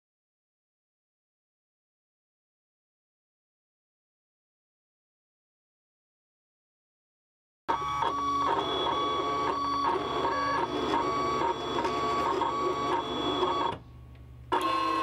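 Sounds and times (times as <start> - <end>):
cutting machine motors whining: 7.7 - 13.8, 14.5 - 15.0.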